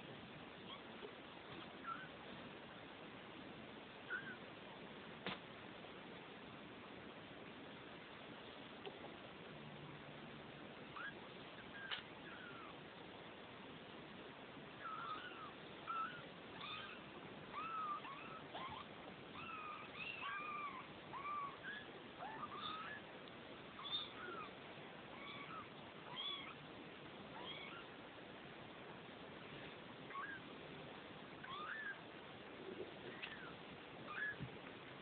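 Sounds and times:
kittens mewing: 14.8 - 23.1, 23.8 - 26.6, 31.4 - 32.0.

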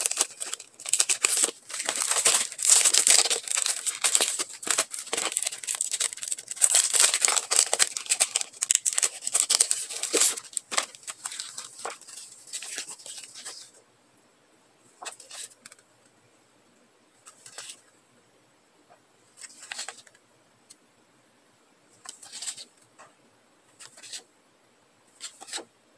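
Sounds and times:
plastic packaging crinkling: 0.0 - 13.7
rustling: 0.0 - 13.8.

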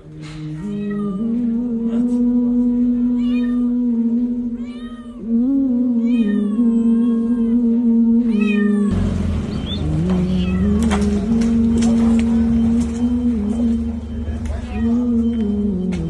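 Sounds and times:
cat meowing: 3.2 - 3.8, 4.5 - 5.2, 6.0 - 7.6, 8.3 - 9.0, 10.3 - 10.9.

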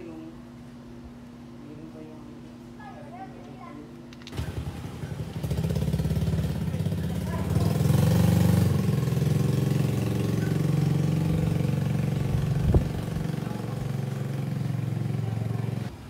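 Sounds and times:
engine running steadily: 4.1 - 16.0.

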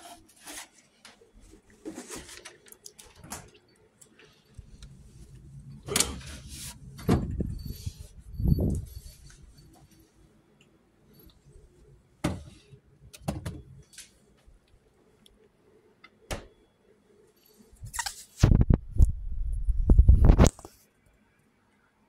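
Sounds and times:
rumbling and rustling: 5.0 - 9.6
fridge door shutting: 5.8 - 7.6.

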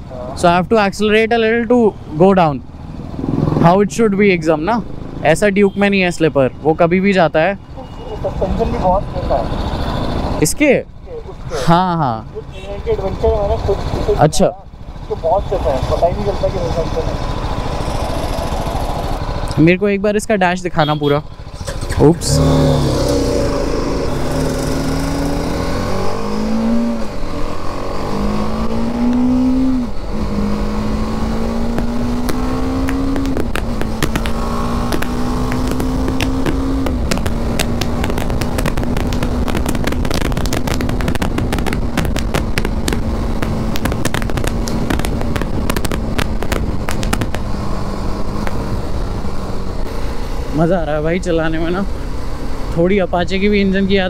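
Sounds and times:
motorcycle engine accelerating: 2.7 - 5.2, 21.5 - 49.9.

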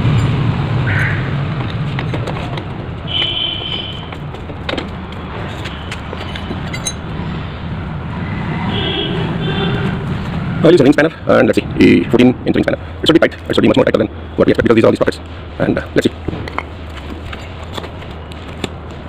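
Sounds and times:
metal clinks: 5.5 - 7.1.

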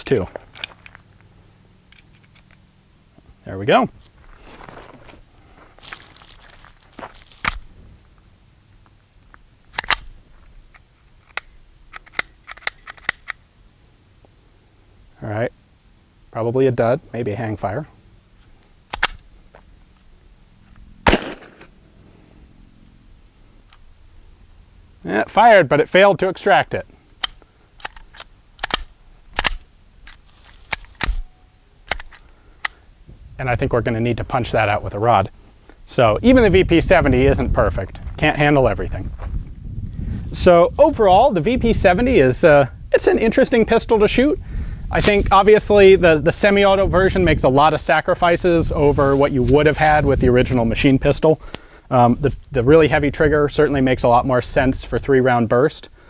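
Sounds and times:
pistol metallic clicks: 9.7 - 13.4, 18.9 - 19.3, 21.1 - 21.7, 27.1 - 32.8.

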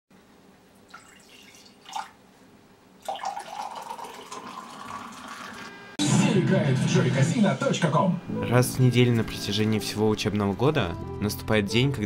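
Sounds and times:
liquid pouring into mug: 0.9 - 2.2, 3.0 - 5.7.

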